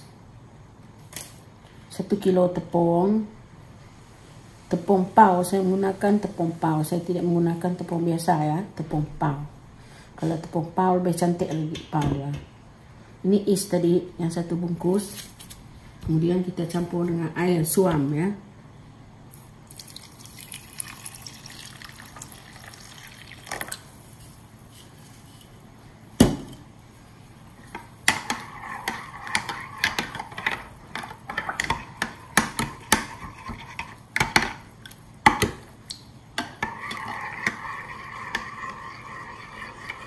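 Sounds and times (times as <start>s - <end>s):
water pouring into a mug: 19.7s - 23.8s.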